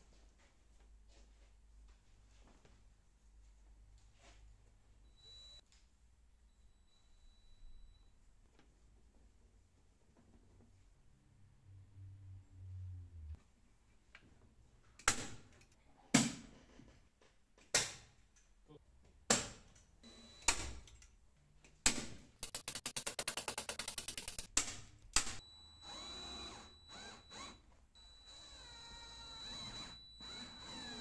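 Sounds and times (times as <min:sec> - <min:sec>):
rapid ratchet clicking: 0:22.4 - 0:24.5.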